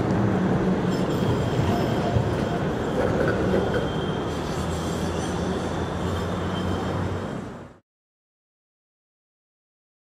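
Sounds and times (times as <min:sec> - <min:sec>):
tram wheels rumbling on rail: 0:00.0 - 0:07.8
high wheel squeal: 0:00.8 - 0:07.7.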